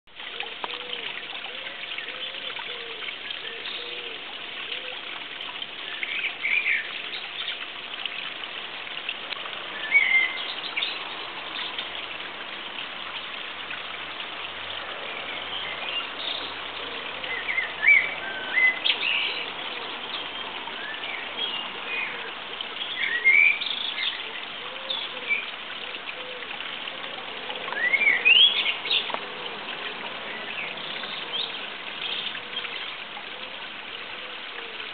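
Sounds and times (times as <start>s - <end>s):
outdoor background hiss: 0.1s - 34.9s
wild birds chirping: 9.6s - 13.6s, 14.2s - 34.9s.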